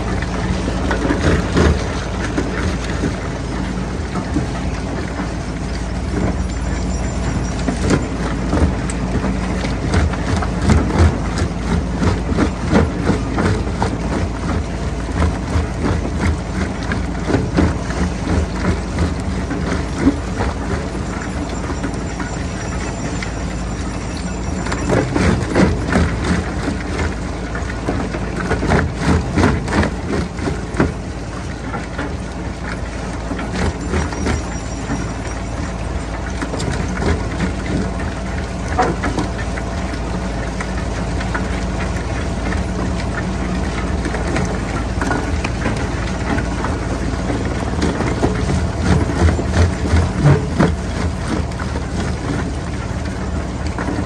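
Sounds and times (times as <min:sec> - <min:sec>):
crusher machine droning: 0:00.0 - 0:54.0.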